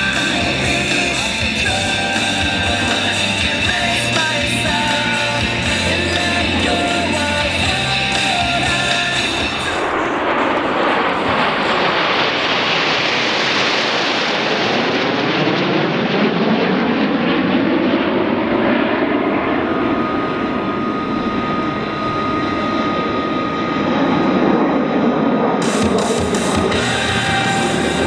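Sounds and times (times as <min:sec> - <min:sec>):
thin steady whine: 0:00.0 - 0:12.0, 0:18.2 - 0:28.0
jets flying overhead: 0:00.0 - 0:28.0.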